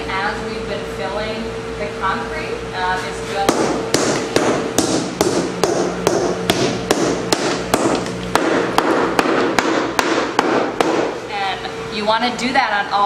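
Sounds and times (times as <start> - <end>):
rubber mallet beating plywood: 3.5 - 11.2.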